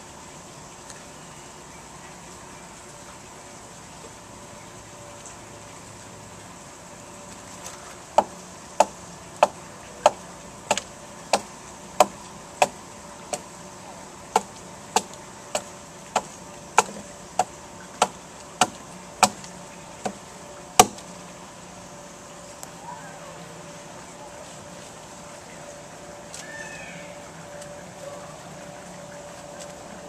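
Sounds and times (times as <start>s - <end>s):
hatchet chopping into log: 14.4s - 19.4s, 20.8s - 21.0s.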